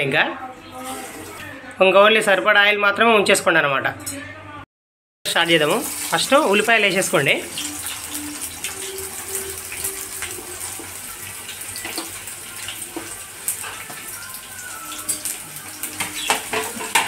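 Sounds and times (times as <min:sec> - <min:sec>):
onions sizzling in hot oil: 0:05.3 - 0:17.0.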